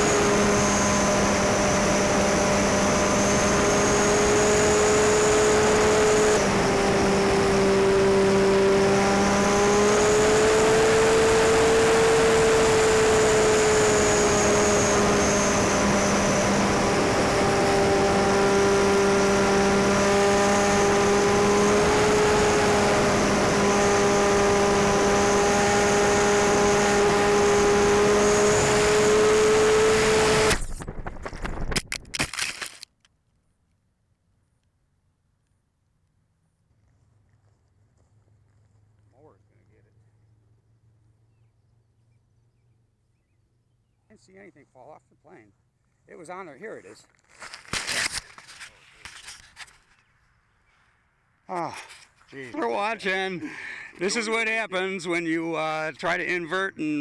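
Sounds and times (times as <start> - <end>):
electric motor and propeller whining: 0.0 - 32.8.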